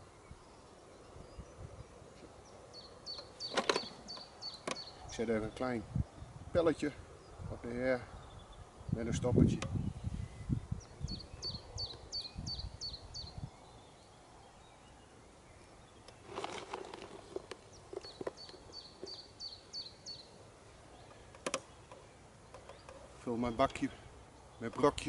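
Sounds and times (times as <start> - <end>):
songbird singing: 0.0 - 25.0
fishing tackle knocks and rustling: 16.2 - 19.2.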